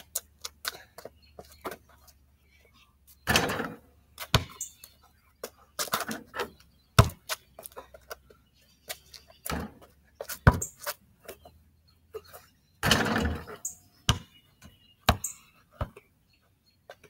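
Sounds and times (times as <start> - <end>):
basketball bouncing on ground: 3.2 - 7.8, 9.4 - 10.9, 12.8 - 16.0
basketball hitting hoop: 3.3 - 4.6, 7.0 - 7.2, 12.8 - 14.3.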